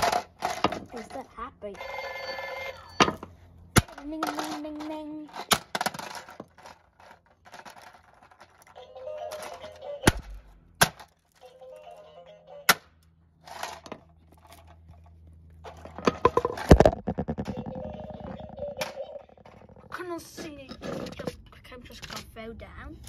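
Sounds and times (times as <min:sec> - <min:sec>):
toy speaker playing tune: 0:01.7 - 0:03.0, 0:08.7 - 0:10.1, 0:11.4 - 0:12.7, 0:17.2 - 0:19.8.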